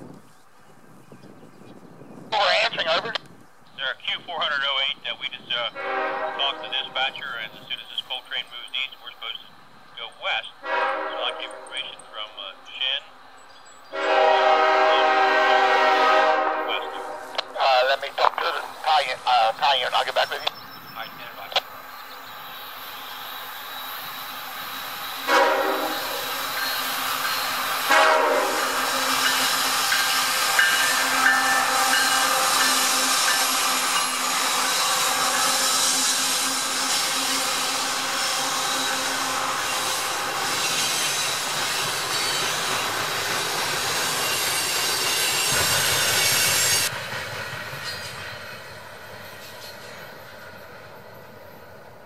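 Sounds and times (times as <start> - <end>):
locomotive horn blasts: 5.7 - 7.2, 10.6 - 12.0, 13.9 - 17.5, 25.2 - 26.5, 27.8 - 29.3, 30.3 - 35.9
high wheel squeal: 22.5 - 27.8, 28.6 - 42.9, 43.9 - 46.9
train wheels clattering over rails: 25.7 - 51.1.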